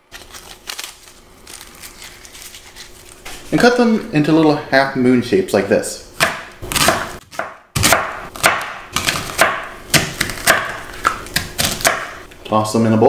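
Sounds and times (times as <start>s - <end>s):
knife slicing onion on cutting board: 6.2s - 12.2s.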